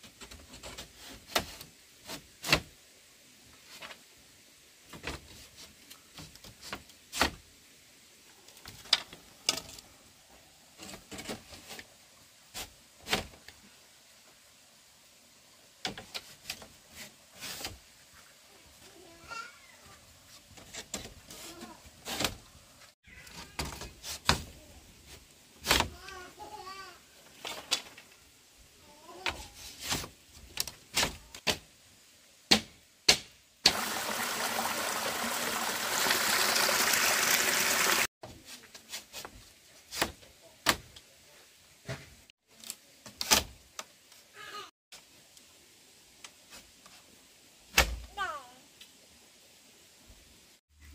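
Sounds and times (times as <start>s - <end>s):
knocks and clatters of handling: 27.3s - 28.3s.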